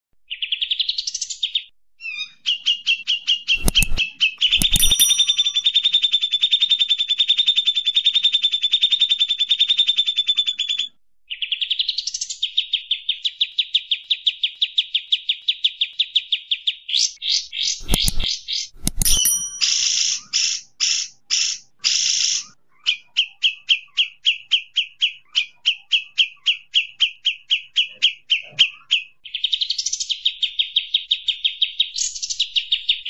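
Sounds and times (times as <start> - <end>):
sharp clicks: 3.6 - 5.6, 17.8 - 19.8
bird rattling trills: 3.6 - 5.8, 17.8 - 20.0.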